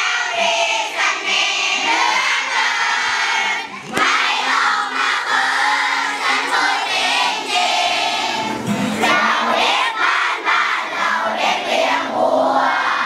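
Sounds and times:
children singing: 0.0 - 13.0.

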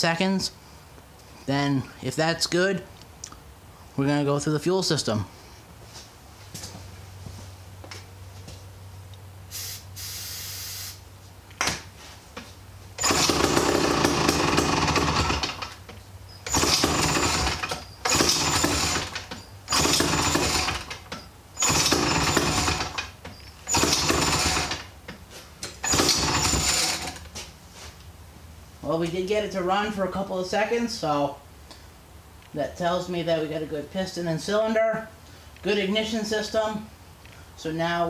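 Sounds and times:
short hiss: 9.5 - 11.1
chainsaw engine firing: 13.0 - 15.8, 16.4 - 24.9, 25.8 - 27.2.

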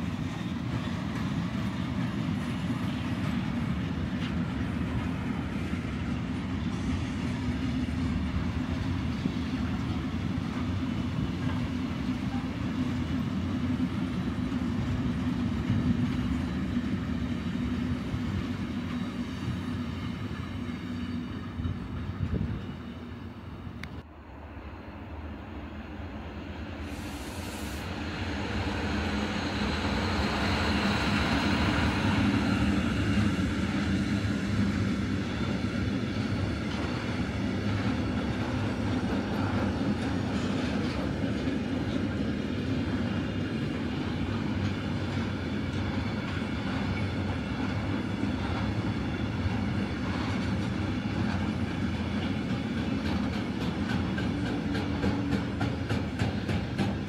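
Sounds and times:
train rumbling past: 0.0 - 57.0
wheels clicking over rail joints: 49.4 - 57.0.

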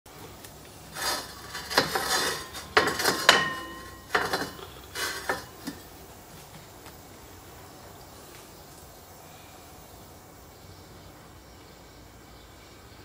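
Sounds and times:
metal kitchenware clattering: 1.0 - 5.9.

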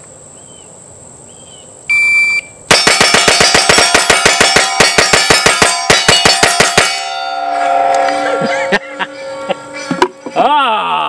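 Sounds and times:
shot timer beep: 1.9 - 2.6
rapid pistol shots: 2.7 - 6.8
steel plate ringing: 2.7 - 11.0.

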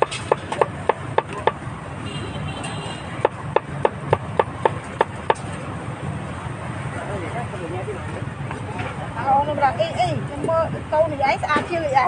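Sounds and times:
cleaver chopping meat on a block: 0.0 - 1.7, 3.2 - 5.5.

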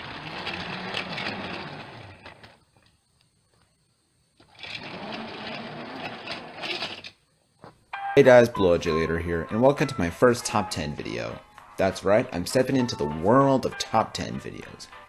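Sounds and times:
toy train motor whirring: 0.0 - 2.6, 4.4 - 7.2.

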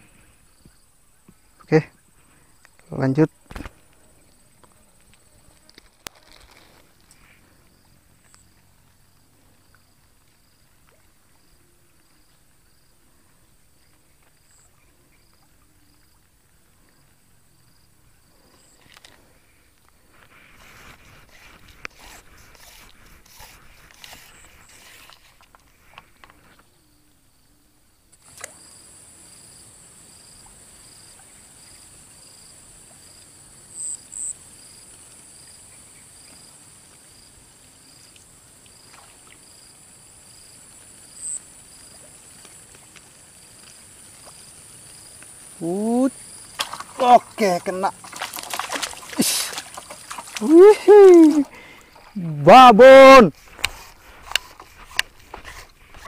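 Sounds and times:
insect chorus: 0.0 - 56.0
fishing rod and line rustling: 0.1 - 12.5, 18.2 - 26.8, 36.3 - 56.0
high hiss: 49.1 - 51.6.

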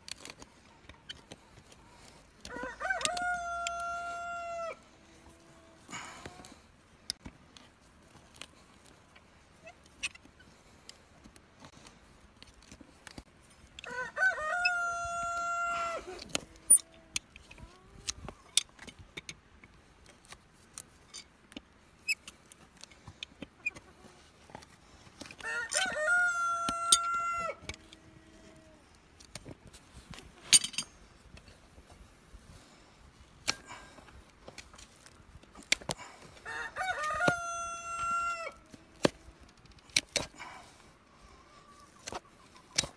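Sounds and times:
rooster crowing: 2.4 - 4.8, 13.8 - 16.8, 25.4 - 28.0, 36.4 - 38.6.

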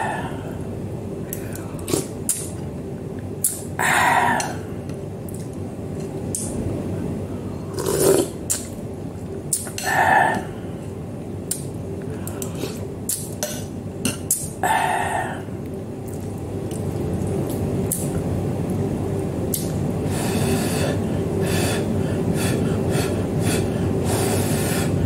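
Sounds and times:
steady hum: 0.0 - 25.0
person slurping soup: 7.7 - 8.7.

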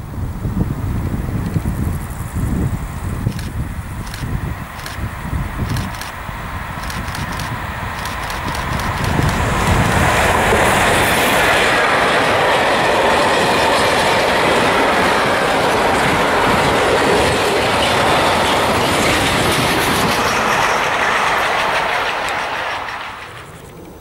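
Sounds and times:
freight train wheels clattering: 6.8 - 23.7.

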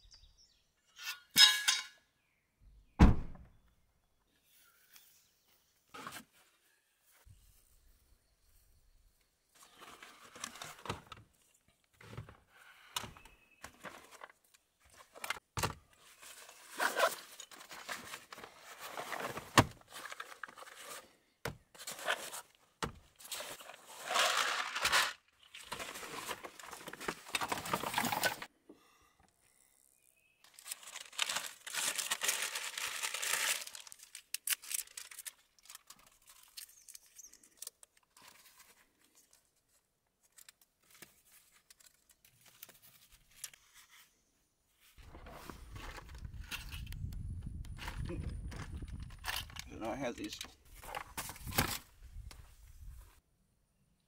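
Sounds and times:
fabric rustling and tearing: 30.5 - 36.5.

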